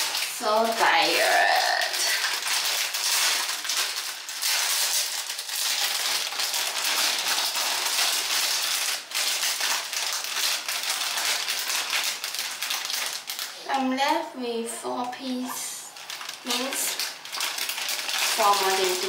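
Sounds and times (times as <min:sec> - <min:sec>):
foam bubbles fizzing: 0:16.4 - 0:19.0.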